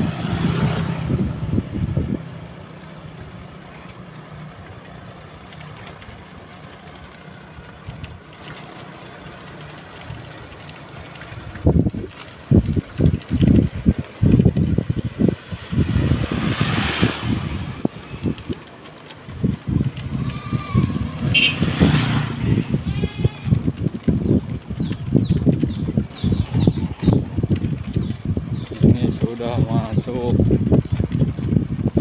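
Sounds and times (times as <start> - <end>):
wind on microphone: 0.0 - 2.5, 11.3 - 32.0
road rumble: 0.0 - 32.0.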